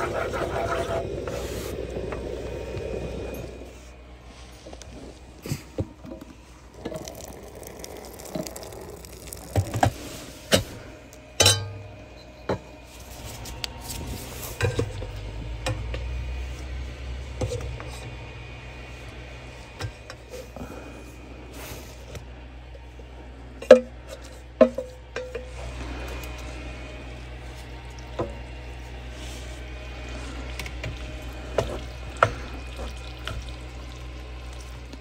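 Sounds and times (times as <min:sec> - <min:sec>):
utensil scraping metal pot: 0:00.0 - 0:02.2
metal pot clanking: 0:11.4 - 0:12.0, 0:24.6 - 0:25.5.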